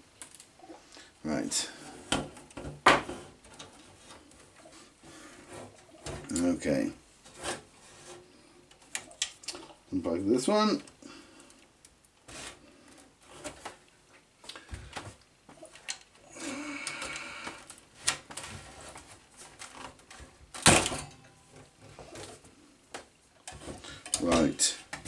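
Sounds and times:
rustle of bundled wires: 1.2s - 20.6s.

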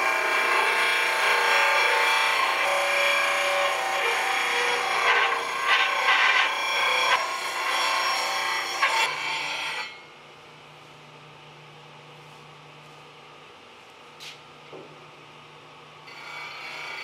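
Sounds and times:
disc sander grinding wood: 0.0s - 9.2s.

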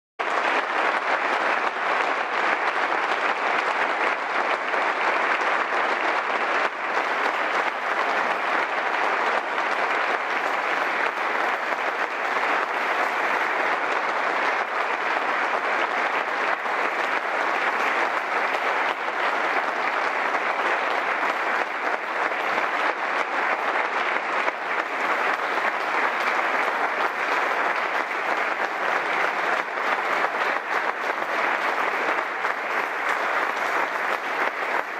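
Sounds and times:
audience applause: 0.2s - 34.9s.

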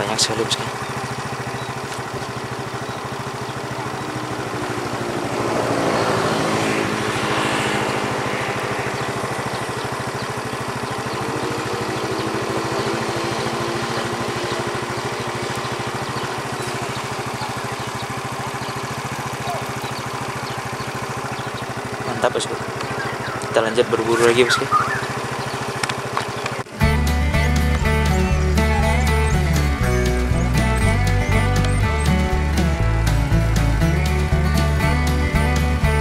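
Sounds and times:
small engine running: 0.0s - 36.0s
rush of noise: 4.0s - 15.0s.

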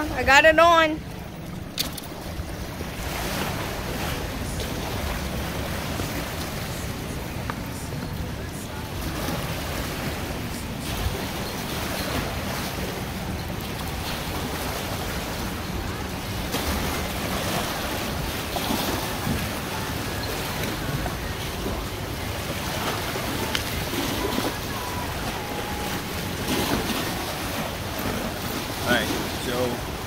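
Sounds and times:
waves lapping against boulders: 0.0s - 30.0s.

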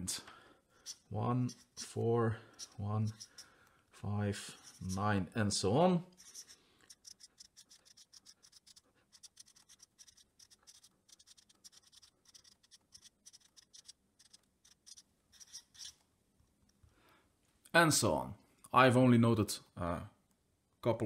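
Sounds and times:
marker scratching on paper: 0.8s - 3.6s, 4.3s - 5.3s, 6.1s - 16.0s.

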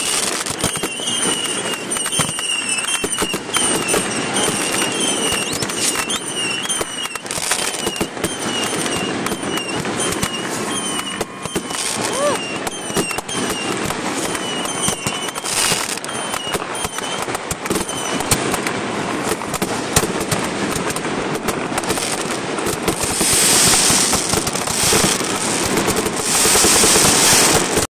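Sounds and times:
fireworks cracking and popping: 0.0s - 27.9s
loud hissing crackle: 0.0s - 27.9s
falling whistles: 0.6s - 18.4s.

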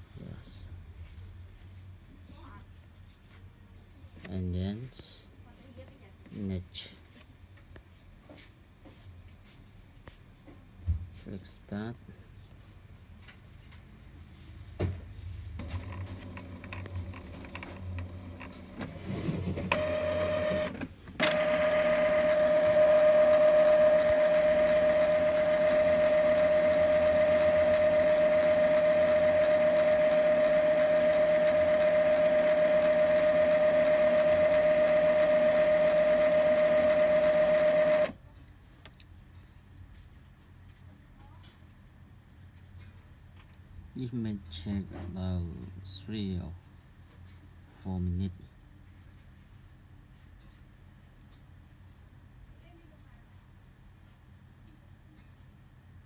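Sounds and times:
printer motor whine: 15.6s - 38.2s
printer whirring and clicks: 15.6s - 38.2s.

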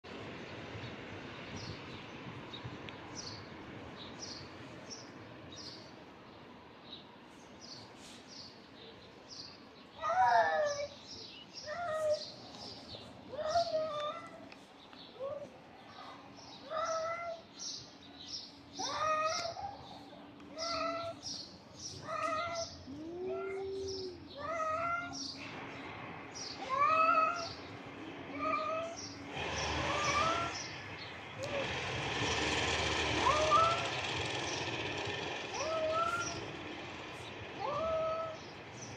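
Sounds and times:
steady background noise: 0.1s - 38.9s
low moaning cat call: 22.1s - 25.2s, 29.7s - 30.7s, 35.4s - 36.6s, 37.6s - 38.6s
small bird chirping: 26.4s - 31.6s, 32.3s - 38.9s
cats yowling: 26.6s - 27.6s, 29.7s - 30.7s, 33.2s - 34.0s, 35.5s - 36.6s, 37.6s - 38.8s.

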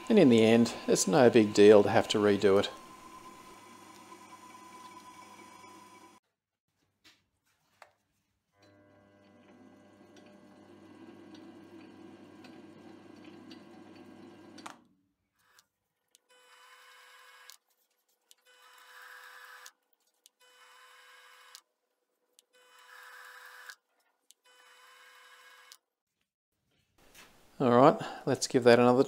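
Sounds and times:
lathe motor humming: 0.0s - 6.2s, 8.6s - 14.6s.

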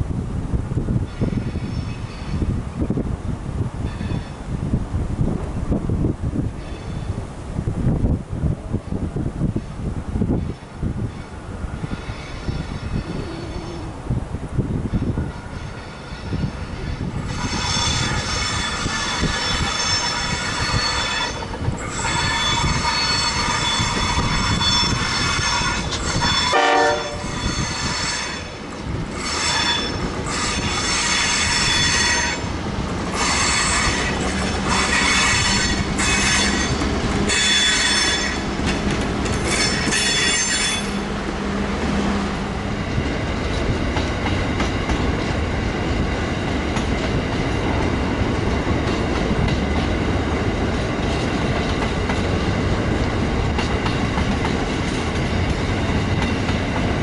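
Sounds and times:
train wheels squealing: 1.1s - 2.5s, 3.9s - 4.4s, 6.6s - 7.2s, 10.4s - 13.8s, 14.9s - 32.5s, 33.2s - 38.5s, 39.3s - 41.0s.

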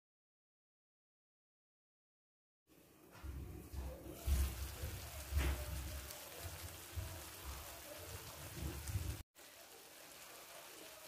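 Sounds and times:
food sizzling and bubbling in pan: 3.4s - 11.0s.

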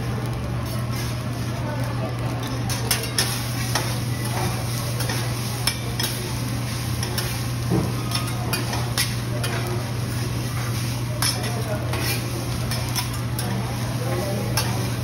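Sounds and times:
rice sizzling: 0.0s - 15.0s
metal spatulas clacking on griddle: 2.4s - 6.3s, 7.0s - 9.8s, 11.2s - 14.9s.

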